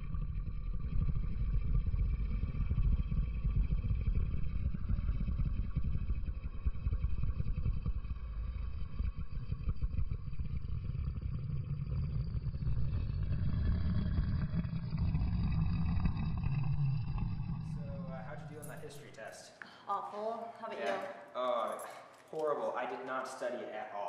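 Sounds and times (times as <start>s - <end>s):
low rough rumble: 0.0s - 19.3s.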